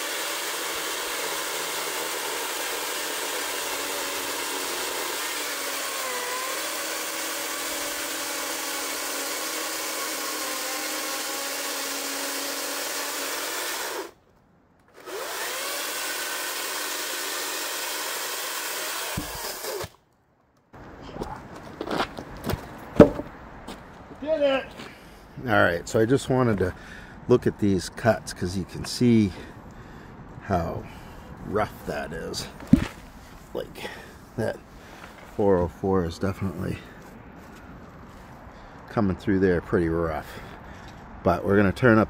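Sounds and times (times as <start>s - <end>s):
electric chainsaw cutting log: 0.0s - 14.2s, 14.9s - 20.0s
log round dropping knock: 23.0s - 23.4s, 32.6s - 33.1s.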